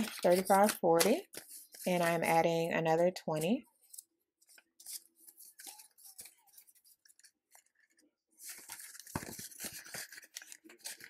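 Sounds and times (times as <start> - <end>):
banknotes and envelope rustling: 0.0 - 2.4, 3.3 - 11.0.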